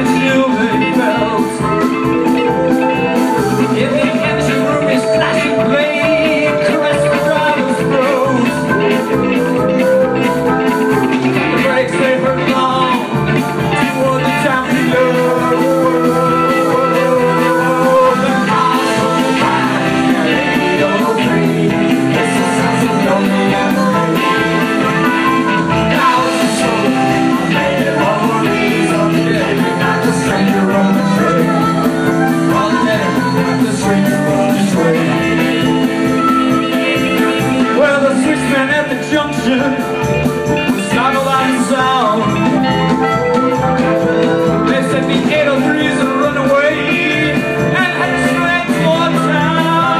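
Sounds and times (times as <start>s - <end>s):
drums: 0.0s - 49.9s
electric guitar: 0.0s - 49.9s
keyboard: 0.0s - 49.9s
person singing: 0.0s - 49.9s.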